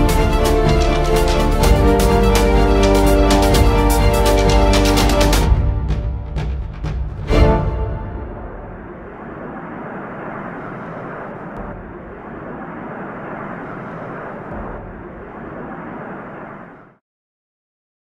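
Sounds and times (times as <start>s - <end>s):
jet aircraft flying past: 8.4s - 17.0s.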